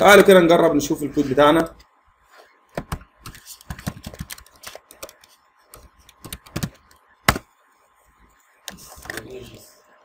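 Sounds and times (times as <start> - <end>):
keyboard keystrokes clicking: 2.8 - 7.4.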